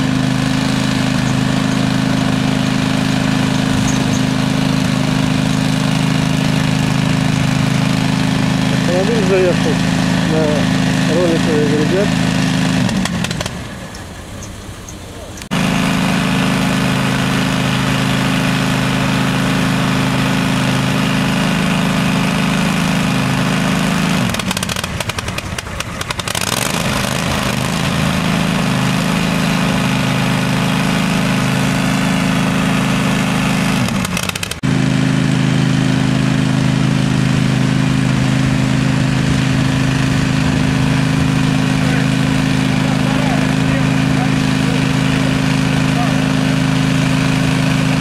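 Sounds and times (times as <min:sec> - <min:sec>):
roller brake tester humming: 0:00.0 - 0:24.3.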